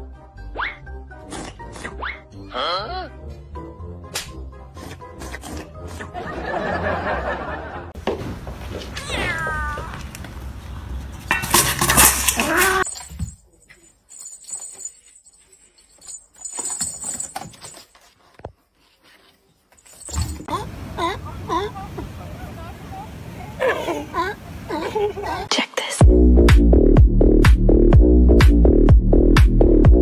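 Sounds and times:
cat meowing: 9.0 - 10.0
cat yowling: 9.0 - 10.0.

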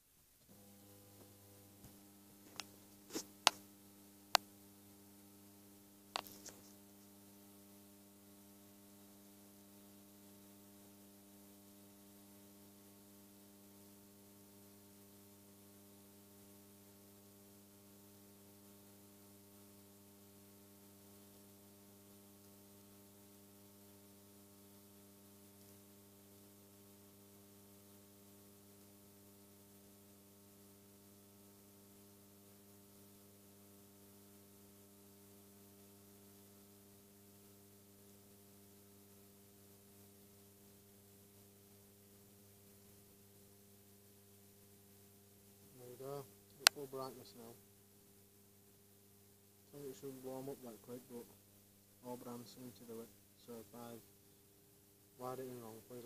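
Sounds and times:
faint mains hum: 0.0 - 56.0.

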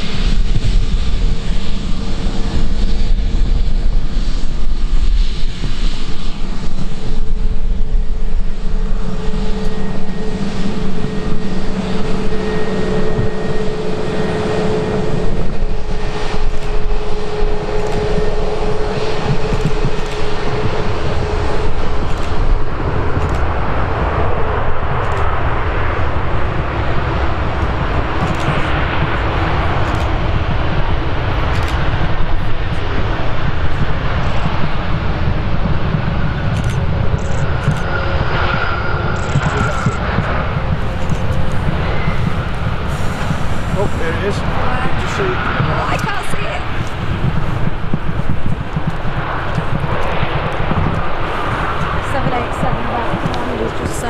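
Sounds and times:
airliner engines: 0.0 - 54.0
wind buffeting microphone: 0.0 - 54.0.

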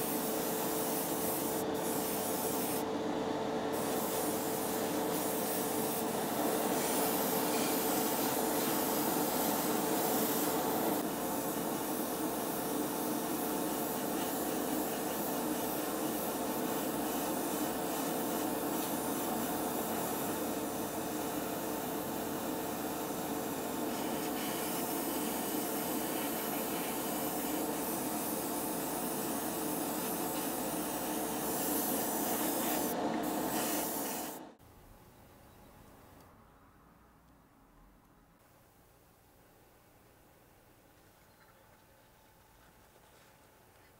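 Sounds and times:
airbrush spraying hiss: 0.0 - 2.9, 3.7 - 34.4
spray booth fan hum: 0.0 - 34.6.

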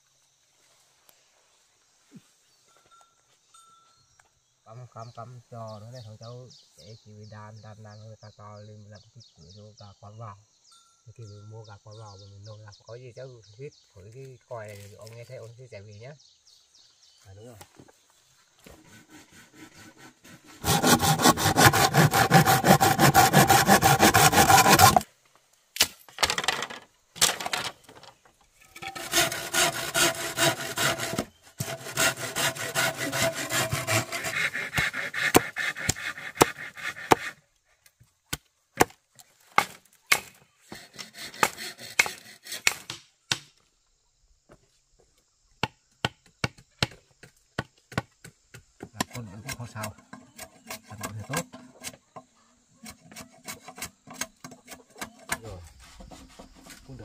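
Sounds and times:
hand saw rasping through wood: 18.6 - 25.0, 28.8 - 37.4, 40.6 - 42.8, 49.0 - 52.0, 52.8 - 57.0
sharp knocks and taps: 45.6 - 49.2.

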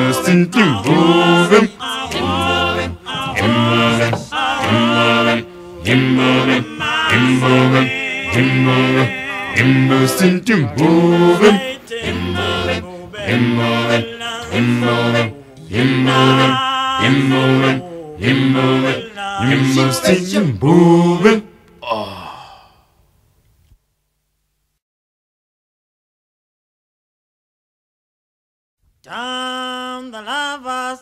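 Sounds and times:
a cappella group singing: 0.0 - 21.5, 29.1 - 31.0.

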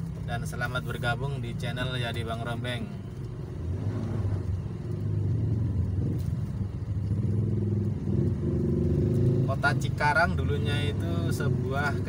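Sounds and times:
road and wind noise: 0.0 - 12.0
motorcycle engine running: 4.3 - 12.0.

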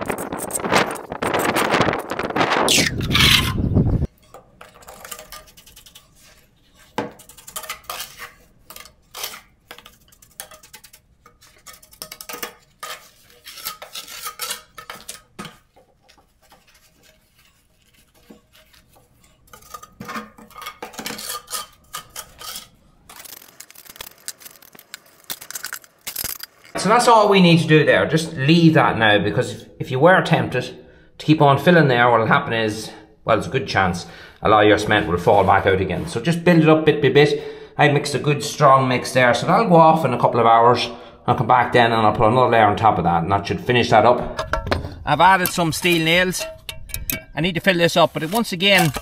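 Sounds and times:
trowel scraping mortar: 0.0 - 26.8, 44.9 - 49.0.

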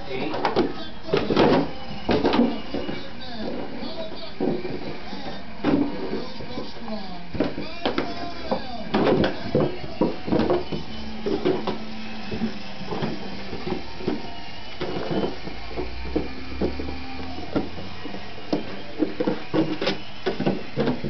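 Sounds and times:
dog chewing plastic jug: 7.4 - 21.0.

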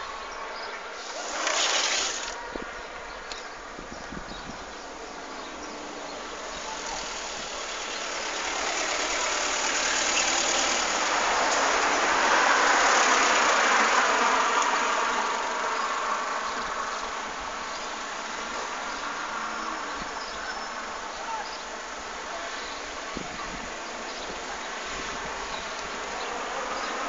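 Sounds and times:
road vehicle passing: 4.9 - 20.1.

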